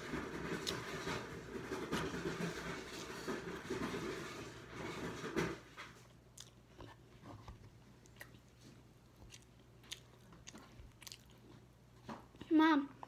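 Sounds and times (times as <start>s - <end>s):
person chewing: 6.0s - 12.4s.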